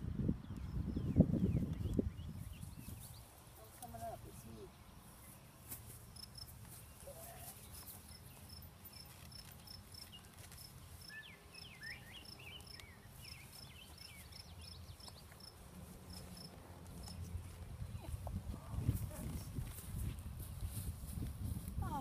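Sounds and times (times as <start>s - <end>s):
bird twittering: 11.0s - 15.2s.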